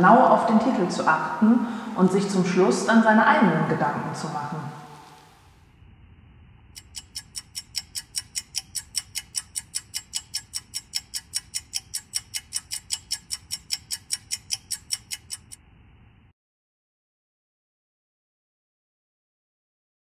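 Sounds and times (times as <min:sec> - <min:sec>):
fast sharp ticking: 0:06.8 - 0:15.6.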